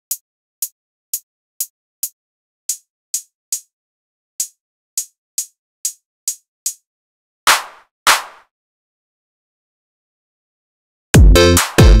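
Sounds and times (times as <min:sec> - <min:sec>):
hi-hat ticks: 0:00.0 - 0:03.8, 0:04.4 - 0:06.9.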